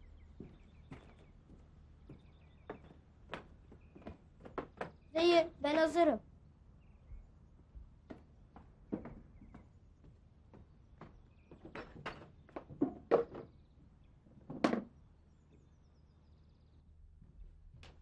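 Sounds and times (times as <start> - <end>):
footsteps on concrete steps: 0.0 - 5.0, 8.1 - 13.0.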